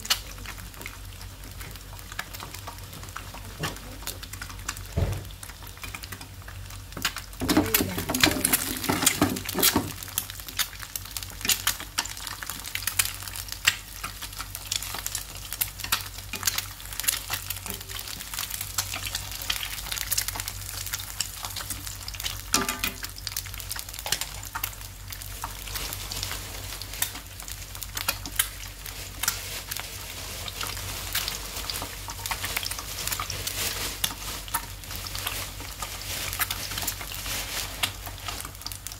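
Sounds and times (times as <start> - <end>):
eggs sizzling in oil: 0.0 - 38.9
chopsticks in pan: 5.8 - 24.8.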